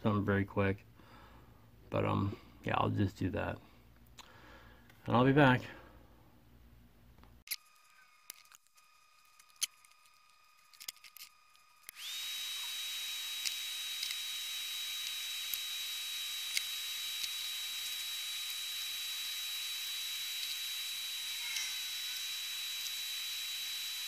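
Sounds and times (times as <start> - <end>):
extractor fan whining: 7.8 - 21.2.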